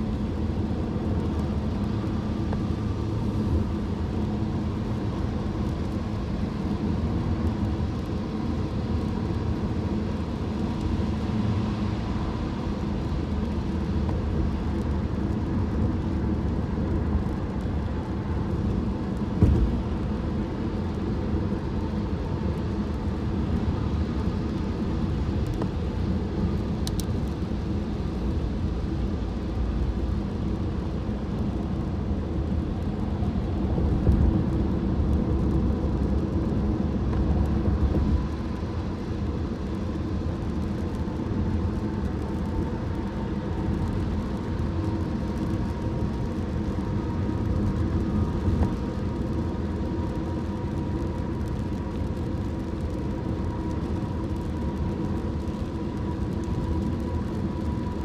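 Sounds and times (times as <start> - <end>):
road rumble inside car: 0.0 - 58.0
thump: 19.4 - 19.8.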